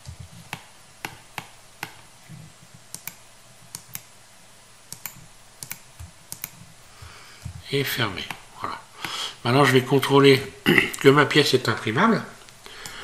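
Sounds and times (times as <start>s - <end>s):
faint steady hiss: 0.0s - 13.0s
mouse and keyboard clicks: 2.9s - 4.1s, 4.9s - 6.6s.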